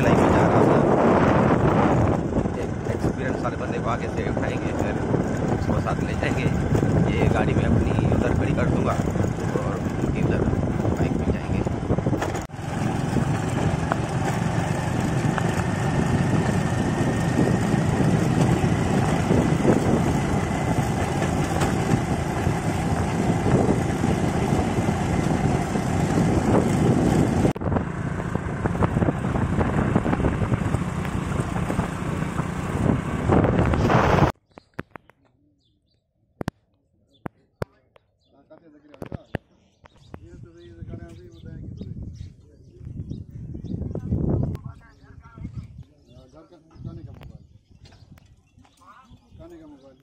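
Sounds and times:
motorcycle engine running: 0.0 - 34.4
wind rushing over microphone: 0.0 - 34.4, 39.9 - 49.4.

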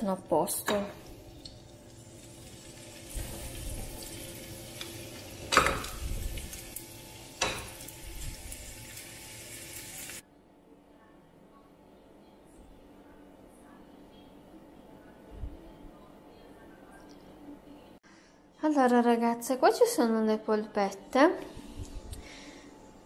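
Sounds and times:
spinach sizzling in a frying pan: 0.9 - 10.2
knocks in a frying pan: 5.5 - 6.0.

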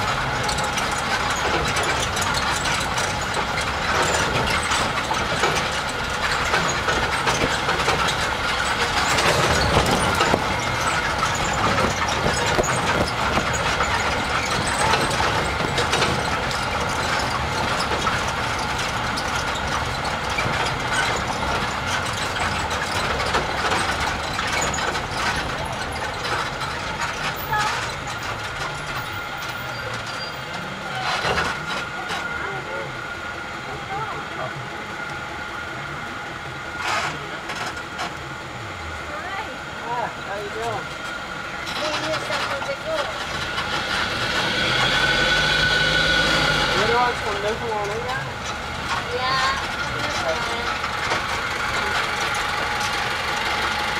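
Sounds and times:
tram engine and tyres running: 0.0 - 53.9.

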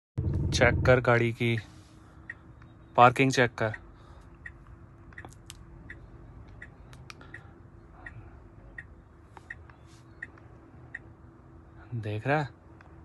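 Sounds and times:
faint steady cabin hum: 0.5 - 13.0
soft even ticking: 2.2 - 11.2
sharp clicks: 4.4 - 7.5.

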